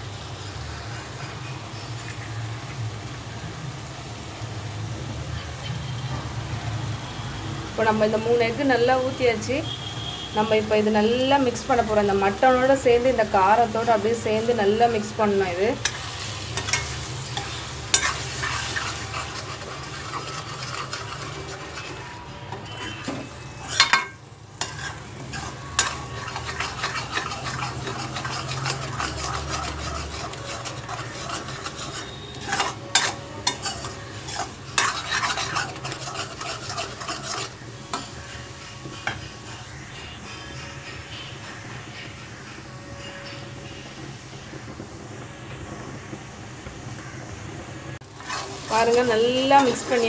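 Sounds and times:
food frying sizzle: 0.0s - 50.0s
metal spoon scraping a pan: 11.1s - 44.7s, 48.0s - 50.0s
spoon clacking against pan: 15.5s - 39.9s.

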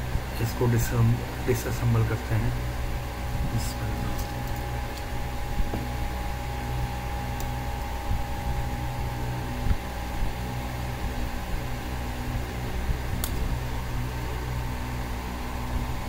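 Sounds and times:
steady mechanical hum with whine: 0.0s - 16.0s.

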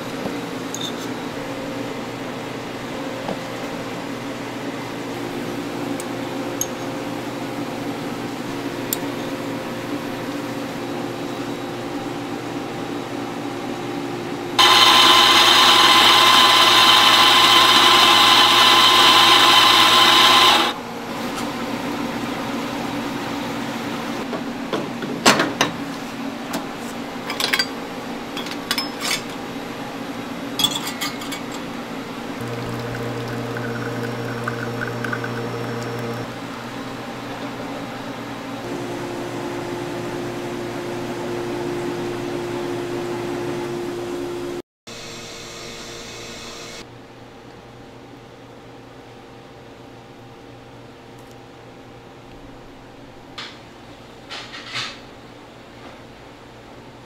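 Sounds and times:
espresso grinder grinding coffee: 14.6s - 20.8s, 32.4s - 36.4s.

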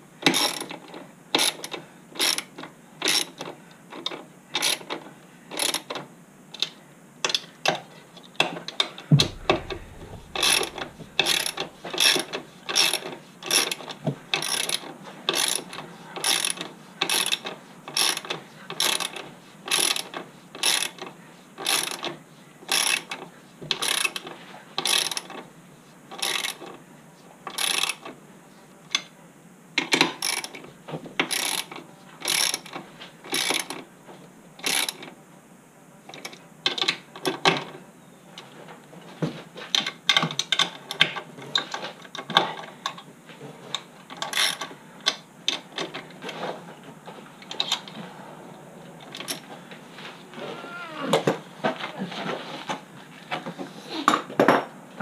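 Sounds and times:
low thump: 9.1s - 12.0s.

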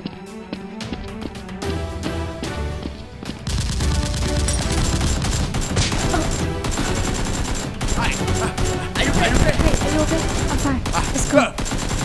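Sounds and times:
background music: 0.0s - 12.0s
rapid gunfire sound effects: 3.4s - 12.0s.

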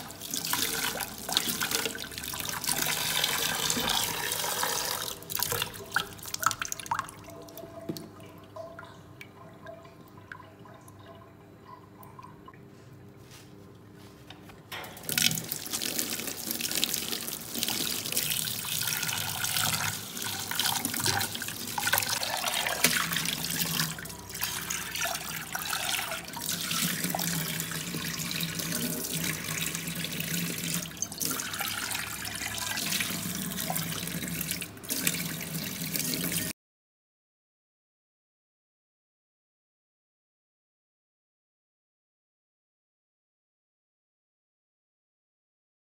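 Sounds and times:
tap water splashing in saucepan: 20.4s - 24.0s.

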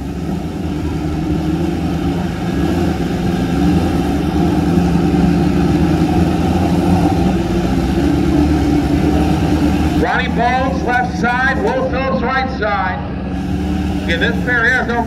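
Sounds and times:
motorcycle engines idling: 0.0s - 15.0s.

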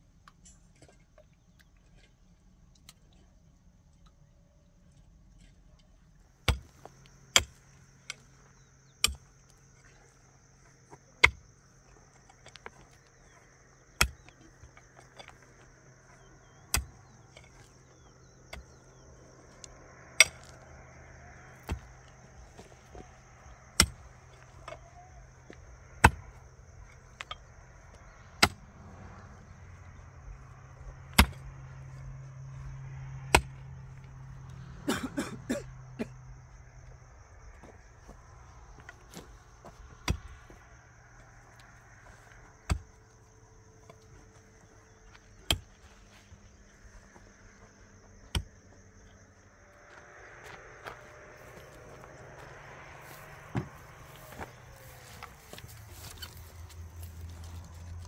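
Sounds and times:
low hum: 0.0s - 58.0s
high whine: 46.8s - 58.0s.

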